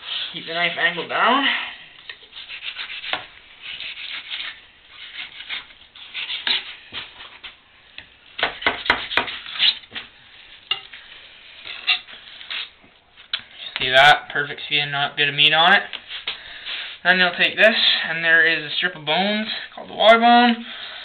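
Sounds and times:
knife scraping fish skin: 2.1s - 6.8s.

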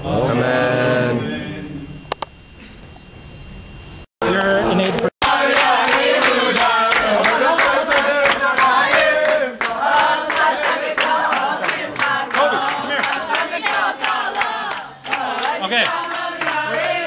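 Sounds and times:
crowd singing loudly: 0.0s - 1.7s, 4.2s - 17.0s
people clapping along: 4.3s - 17.0s.

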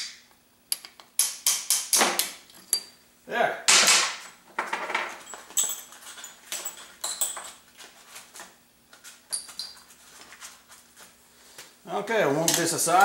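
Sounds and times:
faint steady hum: 0.0s - 13.0s
metallic clinks of steel parts: 5.2s - 7.5s.

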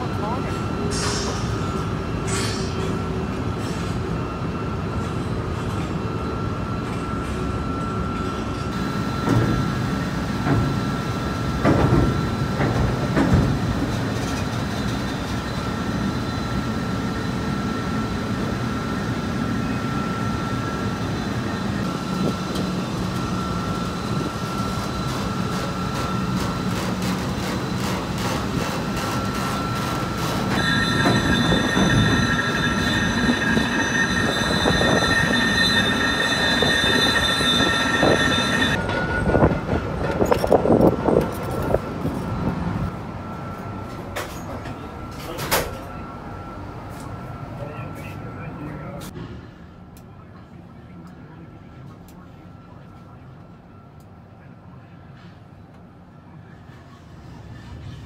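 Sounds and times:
machinery din with whine: 0.0s - 47.0s
high multi-tone whine: 15.9s - 39.5s.

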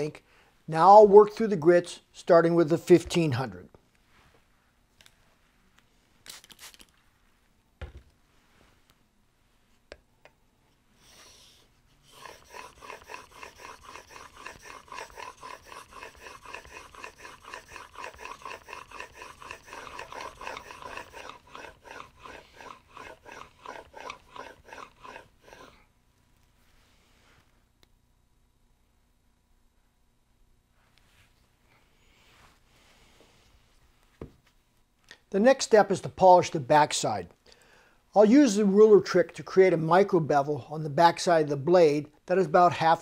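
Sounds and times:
plane blade scraping on waterstone: 12.0s - 25.8s.

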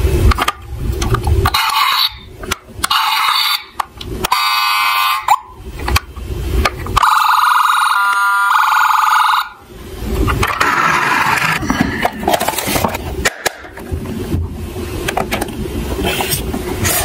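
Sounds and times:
toy electronic siren: 1.5s - 5.5s, 7.0s - 9.6s.

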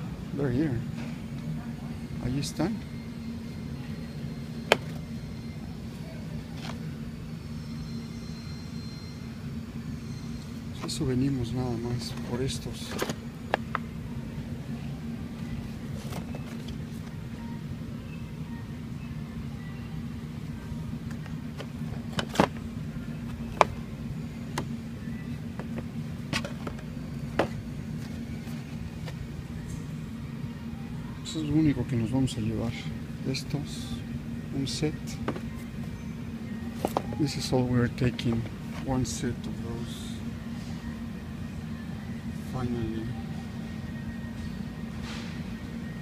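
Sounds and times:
low mechanical hum: 0.0s - 46.0s.

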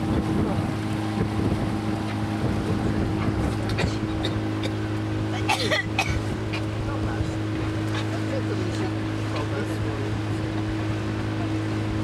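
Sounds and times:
wind on microphone: 0.0s - 5.0s
boat motor humming: 0.0s - 12.0s.

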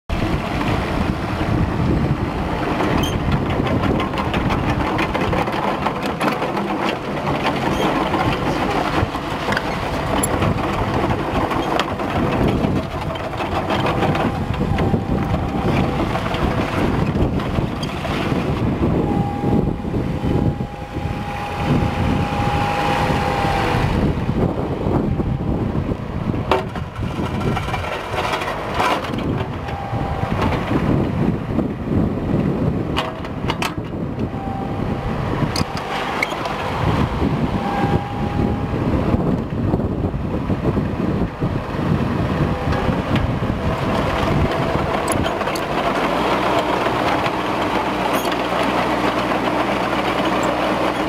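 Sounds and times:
tracks clanking and rattling: 0.1s - 25.1s, 25.8s - 51.0s
excavator diesel engine running: 0.1s - 51.0s
steady high whine: 13.6s - 26.6s, 34.0s - 40.2s.

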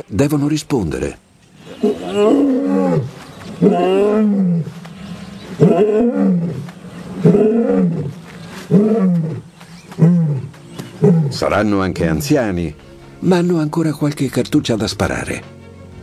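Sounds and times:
lions roaring: 1.6s - 11.6s.

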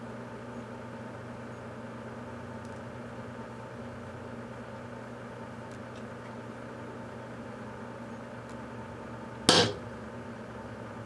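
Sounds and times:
microwave oven humming: 0.0s - 11.0s.

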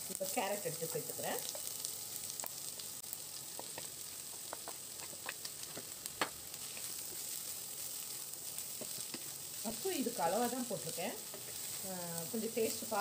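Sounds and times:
food sizzling in a pan: 0.0s - 13.0s
wooden spatula scraping pan: 11.2s - 12.0s.

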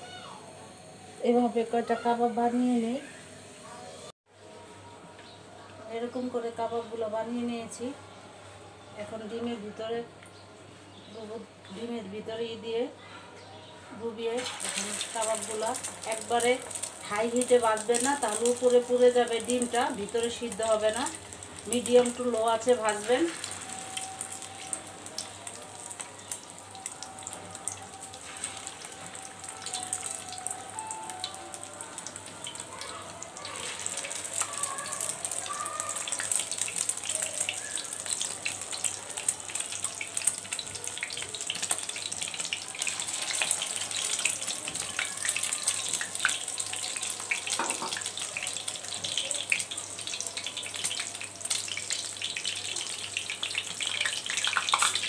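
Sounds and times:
meat sizzling in hot oil: 14.3s - 55.0s.

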